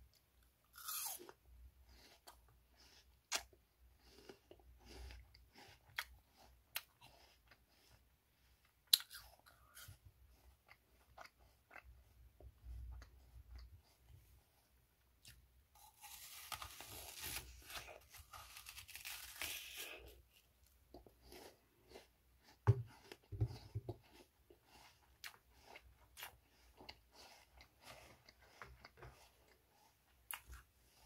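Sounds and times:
person chewing: 0:00.1 - 0:31.0
apple crunching: 0:00.6 - 0:07.9, 0:08.8 - 0:10.0, 0:15.2 - 0:30.7.

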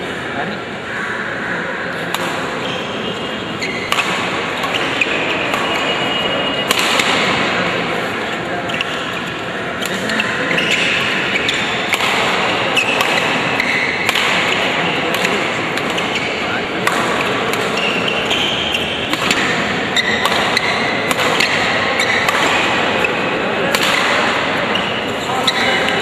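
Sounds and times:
murmur of large hall: 0:00.0 - 0:26.0
rackets striking shuttlecock: 0:02.0 - 0:26.0
shoe squeaks on court floor: 0:02.6 - 0:03.9, 0:10.2 - 0:11.8, 0:17.7 - 0:19.1, 0:19.9 - 0:20.9, 0:22.0 - 0:22.3, 0:24.7 - 0:26.0.

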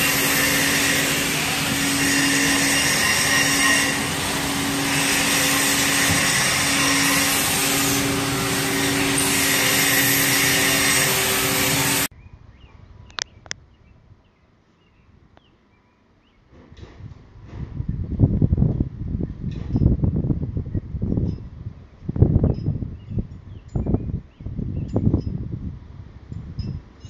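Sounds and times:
machine pump hum and hiss: 0:00.0 - 0:12.1.

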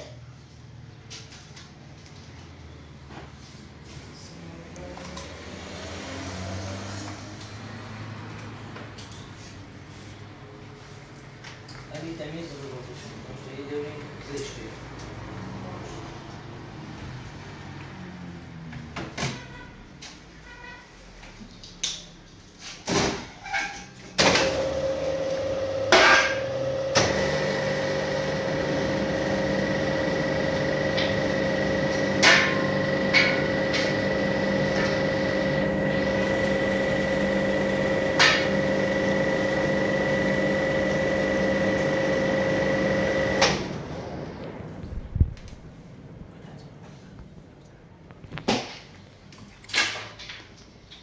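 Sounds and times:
machine humming: 0:24.2 - 0:46.2.

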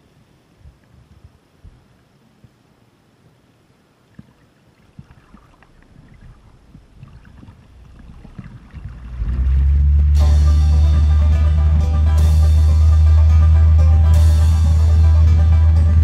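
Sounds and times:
water rushing against tow tube: 0:04.2 - 0:16.0
music: 0:09.7 - 0:16.0.

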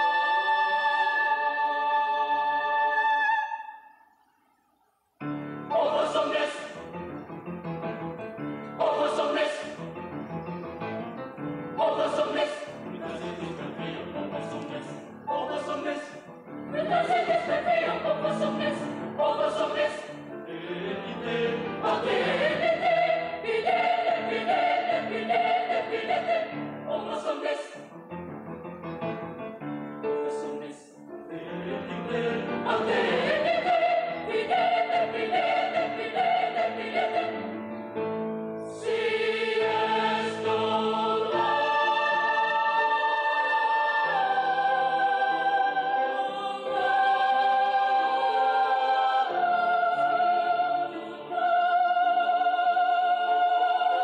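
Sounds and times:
choir singing in parts: 0:00.0 - 0:04.1, 0:05.3 - 0:07.2, 0:08.7 - 0:10.1, 0:11.5 - 0:27.9, 0:30.3 - 0:37.8, 0:38.6 - 0:54.0.

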